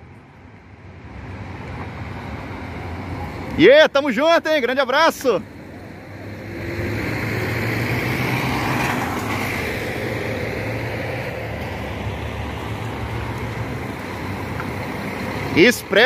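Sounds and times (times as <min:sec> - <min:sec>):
coach diesel engine rumble: 0:01.2 - 0:16.0.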